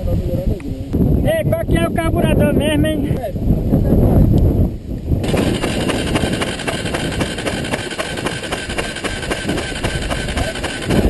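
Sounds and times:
motorcycle engine idling: 5.2s - 11.0s
rapid even ticking: 5.2s - 11.0s
steady whine: 5.2s - 11.0s.

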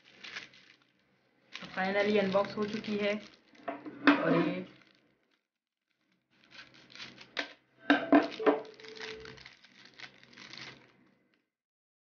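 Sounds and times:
plastic wrap crinkling: 0.0s - 11.5s.

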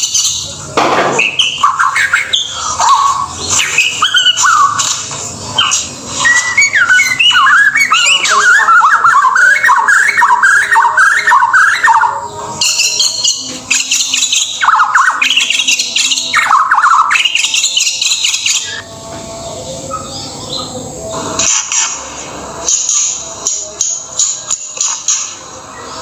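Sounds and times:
bird singing whistled phrases: 1.2s - 4.9s, 5.6s - 18.8s.

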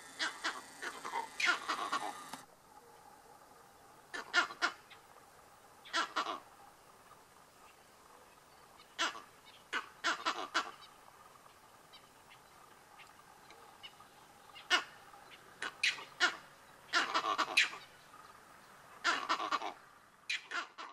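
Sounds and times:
monkey alarm barks: 0.1s - 4.8s, 15.6s - 17.8s, 19.0s - 20.9s.

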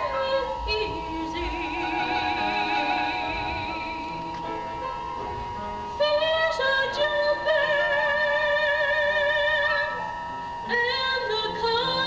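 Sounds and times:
woman singing high note: 0.0s - 4.9s.

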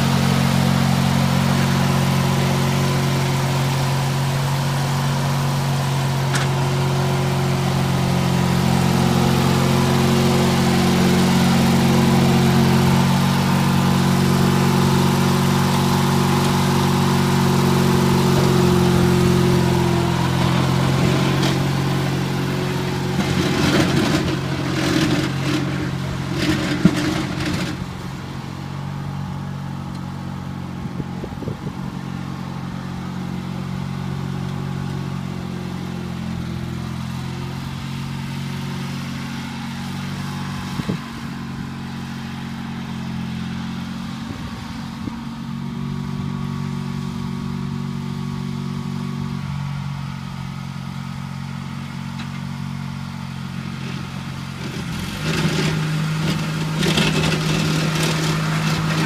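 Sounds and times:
plow clattering and scraping: 0.0s - 30.2s, 51.4s - 59.0s
garden tractor engine running: 0.0s - 59.0s.

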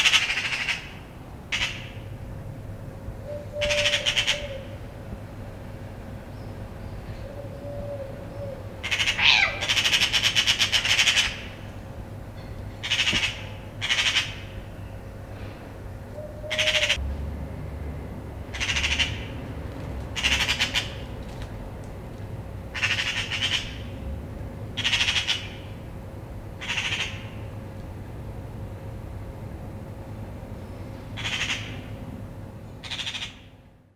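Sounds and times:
magpies harsh rattling chatter: 0.0s - 2.1s, 3.6s - 4.7s, 8.8s - 11.8s, 12.8s - 14.6s, 16.5s - 17.0s, 18.5s - 19.3s, 20.2s - 21.1s, 22.7s - 24.0s, 24.8s - 25.8s, 26.6s - 27.5s, 31.2s - 32.0s, 32.8s - 33.5s.

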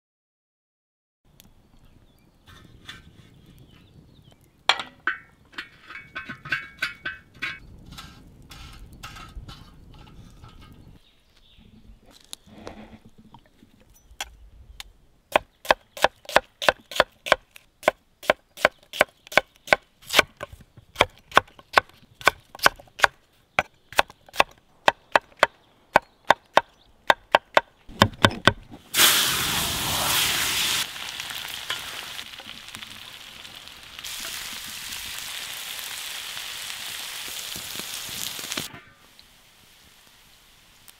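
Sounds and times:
food sizzling in hot oil: 28.9s - 40.9s.

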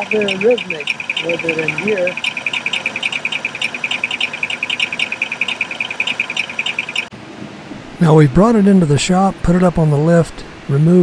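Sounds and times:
car engine idling: 0.0s - 7.1s
rapid high ticking: 0.0s - 7.1s.

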